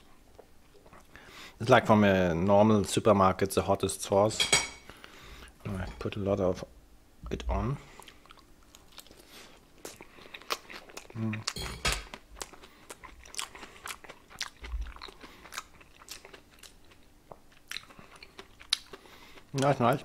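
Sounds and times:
chewing crunchy fried food: 7.9 - 20.0.

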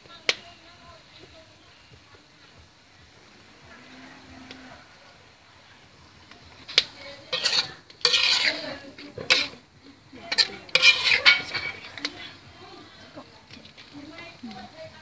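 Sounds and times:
spatula scraping a wok: 6.0 - 14.7.

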